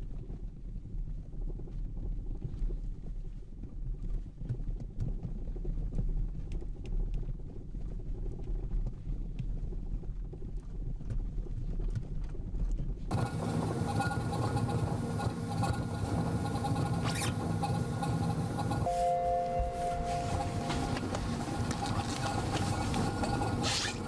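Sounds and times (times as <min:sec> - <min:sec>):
car rattling on vibration rig: 0:13.1 - 0:18.9, 0:19.6 - 0:24.0
two-note hum: 0:15.7 - 0:24.0.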